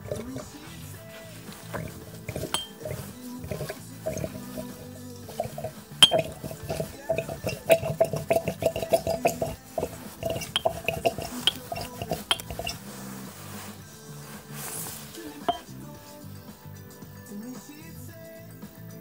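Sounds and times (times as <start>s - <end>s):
metal tube clinking on glass jar: 0.0s - 0.6s, 1.5s - 13.0s, 15.4s - 15.7s
oil dripping into jar: 0.0s - 13.7s, 14.4s - 15.7s.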